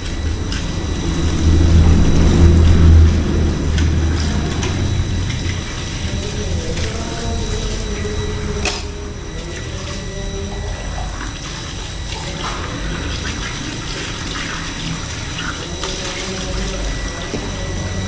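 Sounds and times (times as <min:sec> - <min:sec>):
dishes clinking: 0:08.6 - 0:09.0
tap water running into sink: 0:09.4 - 0:18.0.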